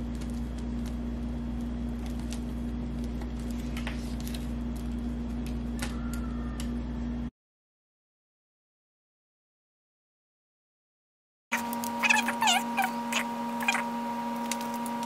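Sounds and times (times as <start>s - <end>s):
soil crackling onto paper: 0.0s - 6.0s
steady low hum: 0.0s - 7.3s.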